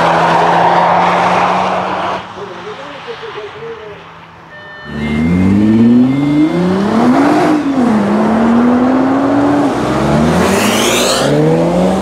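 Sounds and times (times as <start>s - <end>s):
car engine accelerating hard: 4.9s - 12.0s.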